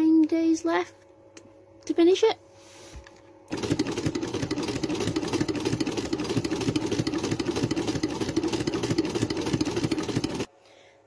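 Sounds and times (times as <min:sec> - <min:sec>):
sewing machine rattling: 0:03.5 - 0:10.5.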